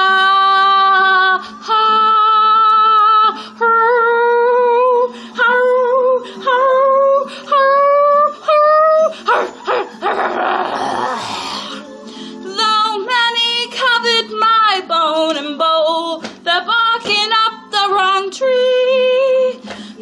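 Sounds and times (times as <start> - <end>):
woman singing wordless phrases: 0.0 - 9.2, 12.5 - 19.7
woman growling: 9.3 - 11.8.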